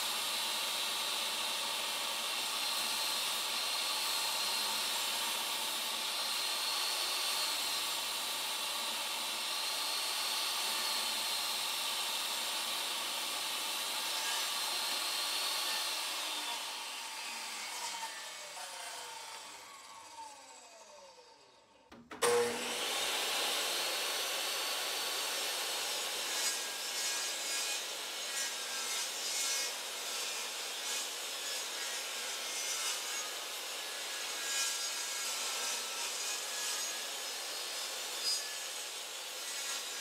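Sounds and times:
table saw whining: 0:00.0 - 0:40.0
saw blade spinning down: 0:18.4 - 0:24.6.

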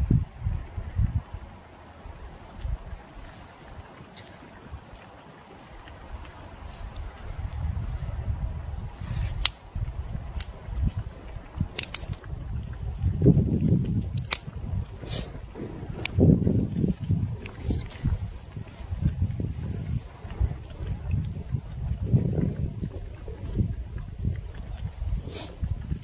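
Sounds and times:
insects singing: 0:00.0 - 0:26.0
low rumbling: 0:05.9 - 0:26.0
sharp snaps: 0:09.2 - 0:09.6, 0:11.6 - 0:15.3.

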